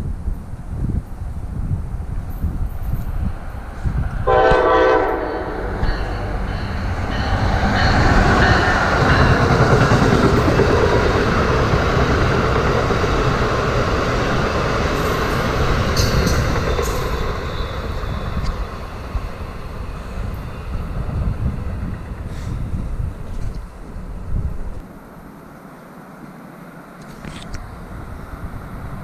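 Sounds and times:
train wheels rumbling on rails: 0.0 - 25.3
train horn blast: 4.2 - 10.0.

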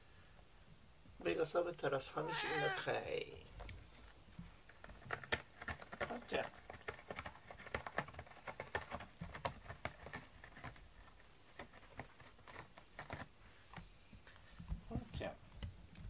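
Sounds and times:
cat claws scratching cardboard: 4.7 - 13.4.

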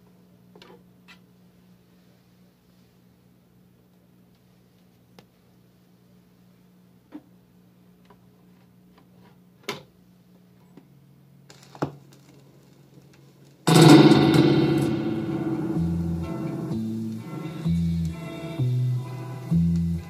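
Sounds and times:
low hum: 13.7 - 19.1
reggae record playing: 13.7 - 20.0.

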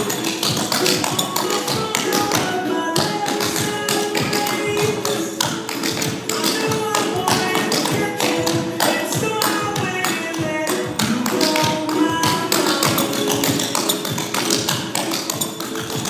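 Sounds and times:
recorded pop music: 0.0 - 16.0.

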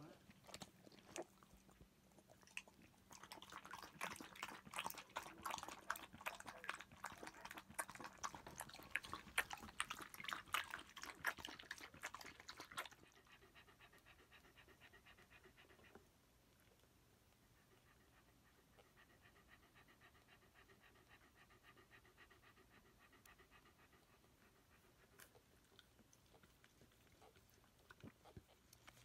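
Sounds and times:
dog panting: 0.0 - 29.0
dog lapping from bowl: 2.2 - 13.4.

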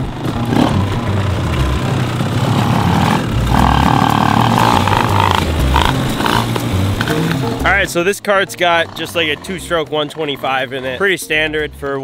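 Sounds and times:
kart engine running loud: 0.0 - 7.7
higher-pitched buzz: 0.0 - 7.9.

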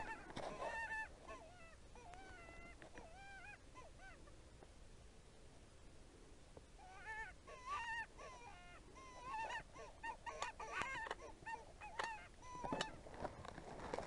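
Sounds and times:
coyotes yipping and howling: 0.0 - 4.5, 6.8 - 13.1.

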